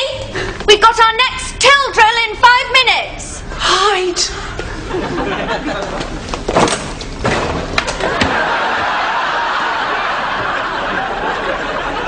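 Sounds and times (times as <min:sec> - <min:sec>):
audience laughing: 0:04.6 - 0:06.4, 0:08.0 - 0:12.0.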